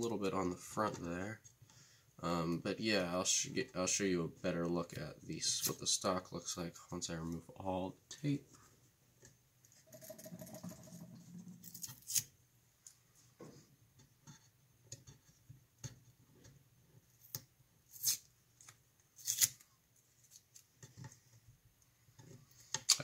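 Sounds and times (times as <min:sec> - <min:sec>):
sharp tape rips: 0:11.7 - 0:12.3, 0:19.2 - 0:19.7
tape peeling off wood: 0:19.2 - 0:19.7.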